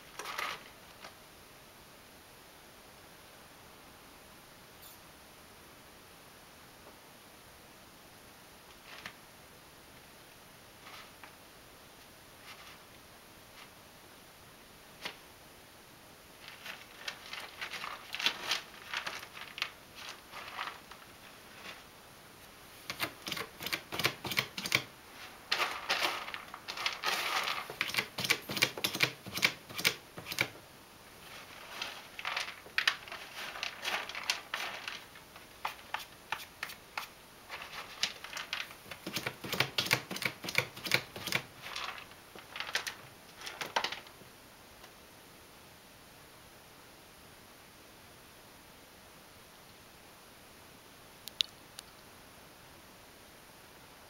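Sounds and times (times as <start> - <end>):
cat scraping litter: 16.4 - 21.9, 22.8 - 30.5, 31.2 - 44.0.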